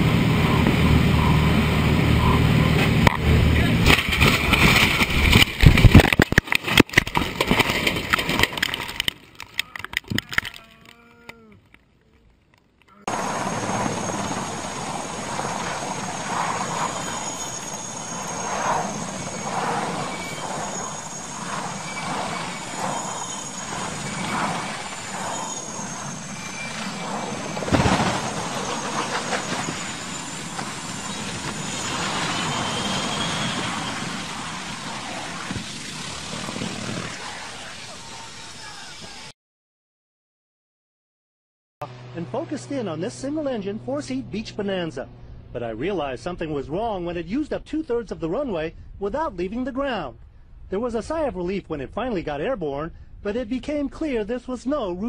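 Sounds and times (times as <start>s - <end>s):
helicopter rotor noise: 0.0s - 9.0s, 13.1s - 39.3s
crashes and rattling in a cockpit: 2.2s - 10.7s, 11.6s - 37.7s
voices: 9.6s - 12.2s, 37.4s - 39.3s, 42.2s - 49.8s.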